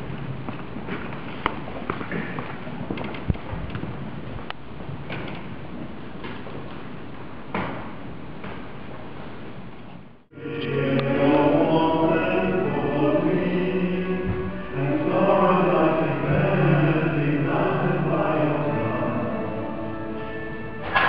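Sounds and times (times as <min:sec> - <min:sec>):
voices singing slow chant: 0:10.3 - 0:21.0.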